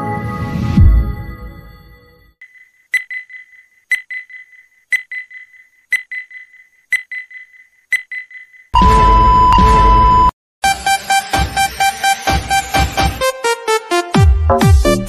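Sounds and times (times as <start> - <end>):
ticking clock: 2.4 - 8.7.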